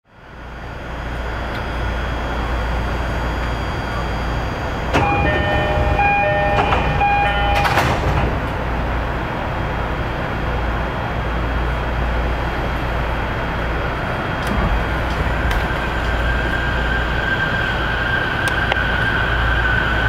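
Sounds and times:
train rumble and hum: 0.1 - 20.0
electronic chime: 5.0 - 8.0.

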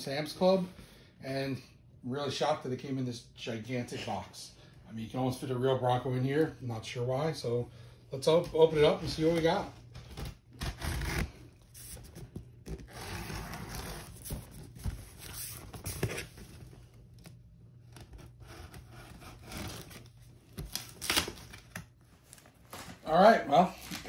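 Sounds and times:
packing tape tearing: 10.1 - 14.5, 17.9 - 21.9.

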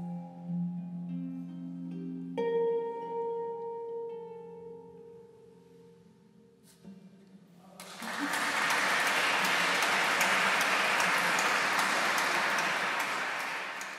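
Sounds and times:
audience applauding: 7.8 - 13.9.

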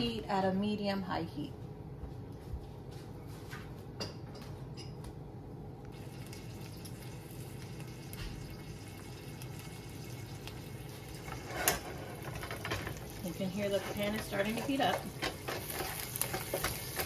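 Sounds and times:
bacon sizzling in a pan: 5.9 - 17.0.

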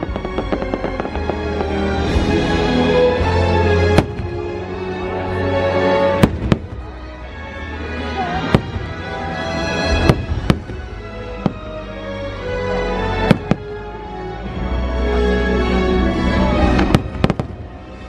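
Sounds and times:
firework shells bursting: 0.0 - 1.9.

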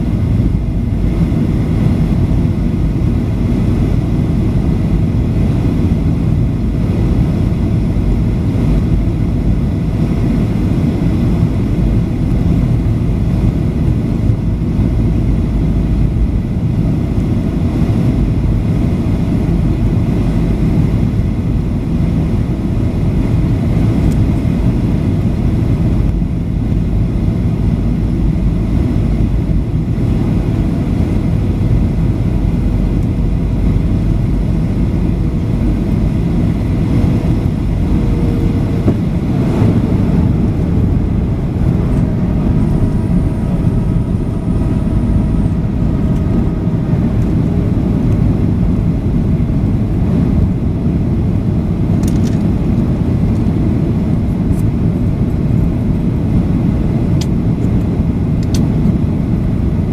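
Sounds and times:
airplane cabin engine roar: 0.0 - 59.9.

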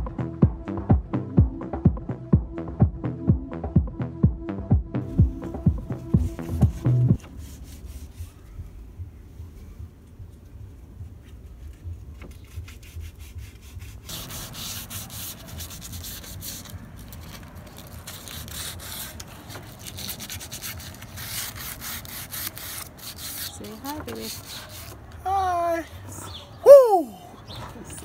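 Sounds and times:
sandpaper scratching on wood: 5.9 - 8.6, 12.3 - 25.2.

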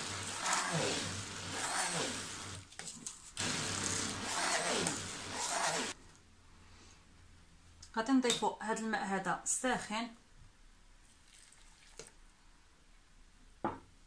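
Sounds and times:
stick blender grinding: 0.0 - 6.0.

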